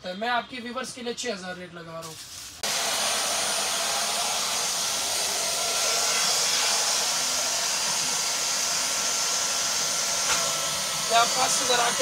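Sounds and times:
vacuum cleaner running: 0:02.6 - 0:12.0.

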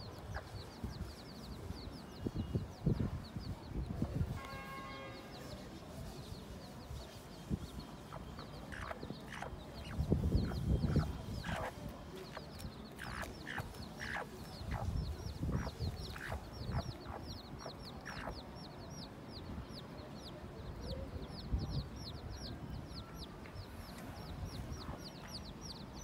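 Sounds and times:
chicks peeping: 0:00.0 - 0:04.4, 0:05.4 - 0:26.0
hen clucking: 0:08.1 - 0:18.4.

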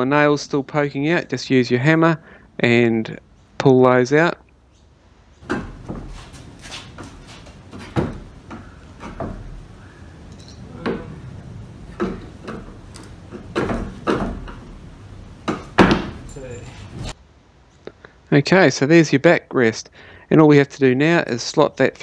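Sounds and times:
claw hammer knocking on wood: 0:11.9 - 0:14.7, 0:15.4 - 0:16.2.

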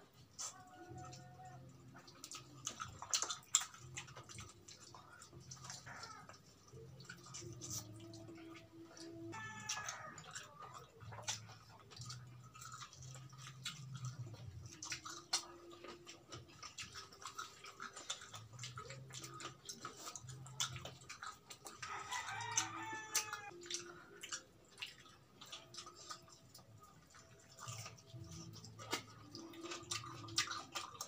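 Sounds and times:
lips smacking and chewing: 0:00.0 - 0:31.0
rooster crowing: 0:09.3 - 0:10.3, 0:21.8 - 0:23.6.

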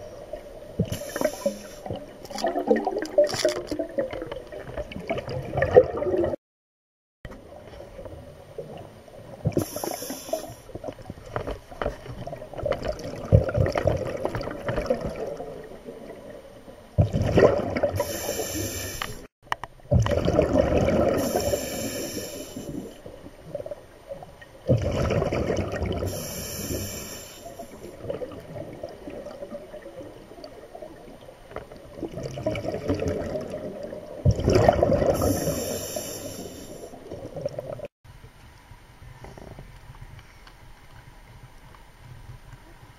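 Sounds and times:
gurgle of underwater bubbles: 0:00.0 - 0:06.4, 0:12.0 - 0:19.0, 0:19.8 - 0:37.9
rush of exhaled bubbles: 0:00.7 - 0:06.4, 0:12.2 - 0:16.4, 0:17.0 - 0:19.2, 0:19.9 - 0:23.8, 0:24.6 - 0:31.1, 0:31.9 - 0:37.9.

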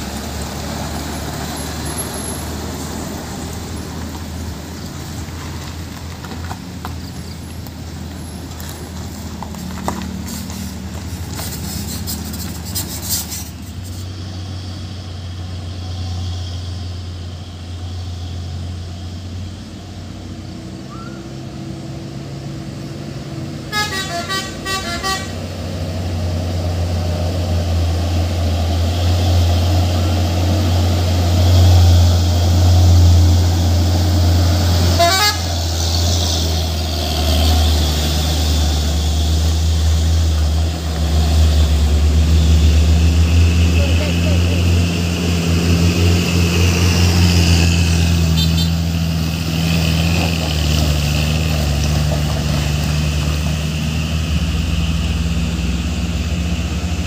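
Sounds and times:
heavy truck engine droning: 0:00.0 - 0:57.0
pulsing vehicle horn: 0:23.7 - 0:25.5, 0:34.9 - 0:35.6, 0:48.2 - 0:48.9.

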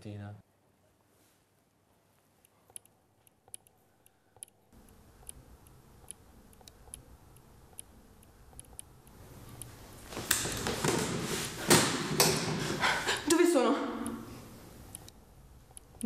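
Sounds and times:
sharp high clicks: 0:02.7 - 0:10.4, 0:14.0 - 0:16.0.

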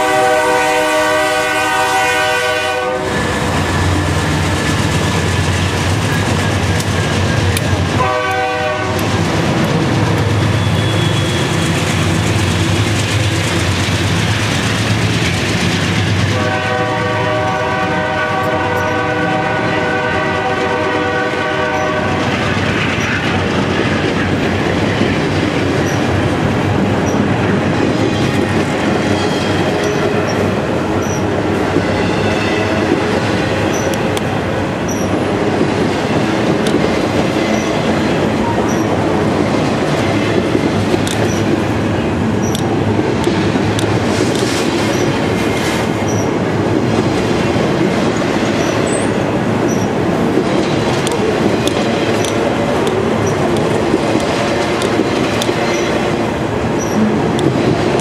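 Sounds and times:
train horn: 0:00.0 - 0:04.2, 0:08.0 - 0:09.1, 0:16.3 - 0:22.6
diesel locomotives droning: 0:00.0 - 0:58.0
train wheels clickety-clack: 0:00.0 - 0:58.0.

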